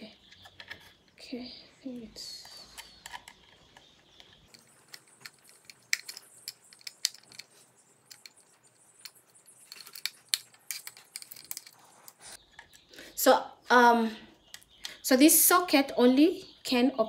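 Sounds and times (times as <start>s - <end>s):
screwdriver clicks and scrapes: 2.7s - 12.8s.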